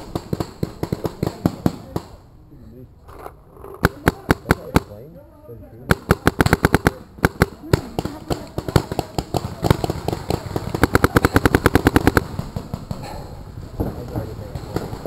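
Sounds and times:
paintball markers firing rapidly: 0:03.8 - 0:05.0, 0:05.9 - 0:13.1.

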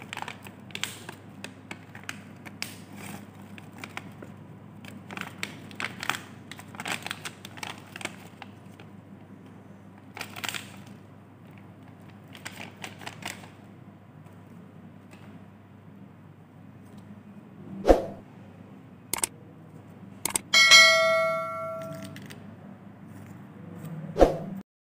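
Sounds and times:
plastic packet crinkling: 0:00.0 - 0:04.2, 0:04.8 - 0:08.8, 0:10.1 - 0:11.0, 0:11.9 - 0:13.6
biscuits clicking into hand: 0:00.1 - 0:04.2.

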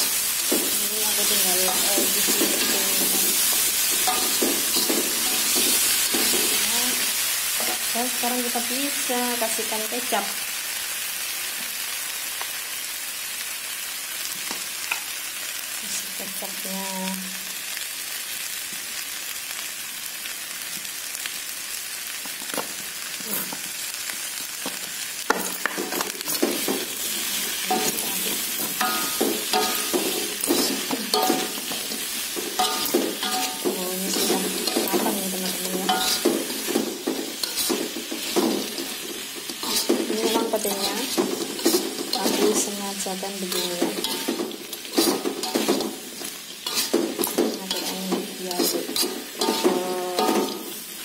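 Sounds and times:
food sizzling in a wok: 0:00.0 - 0:51.0
metal spatula scraping pan: 0:26.0 - 0:42.8, 0:43.4 - 0:50.9.

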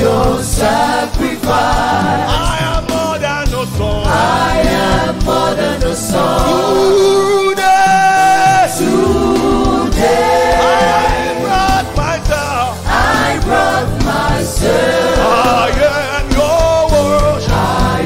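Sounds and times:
backing vocalists singing: 0:00.0 - 0:18.0
instrumental accompaniment: 0:00.0 - 0:18.0
man singing lead: 0:02.3 - 0:04.5, 0:10.6 - 0:12.8, 0:15.2 - 0:18.0.

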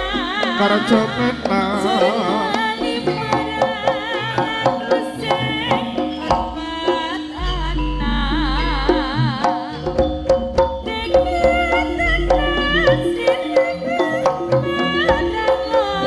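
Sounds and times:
drums keeping steady beat: 0:00.0 - 0:16.0
wavering gamelan melody: 0:00.0 - 0:16.0
deep bass tone: 0:07.4 - 0:13.3.

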